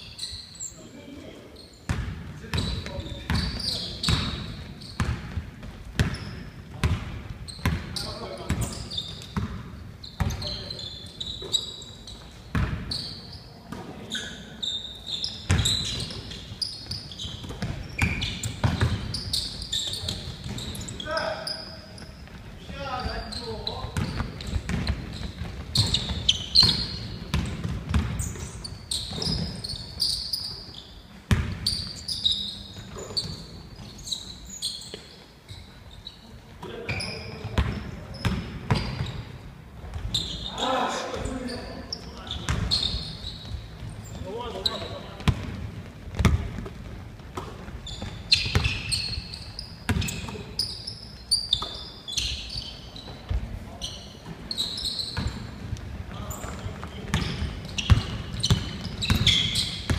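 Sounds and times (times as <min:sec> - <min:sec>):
shoes squeaking on court: 0:00.0 - 0:59.9
basketball bouncing on wooden floor: 0:01.9 - 0:10.5, 0:12.5 - 0:12.9, 0:17.3 - 0:19.3, 0:23.9 - 0:29.6, 0:31.3 - 0:31.9, 0:45.2 - 0:49.2, 0:49.9 - 0:50.4, 0:56.4 - 0:59.9.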